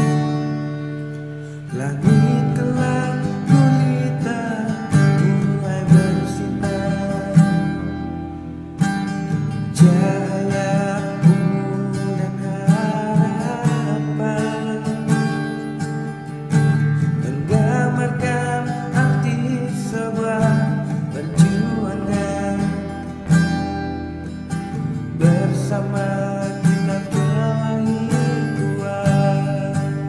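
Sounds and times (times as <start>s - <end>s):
strummed acoustic guitar: 0.0s - 30.0s
person singing: 1.6s - 8.1s, 9.7s - 15.6s, 17.2s - 23.3s, 25.1s - 30.0s.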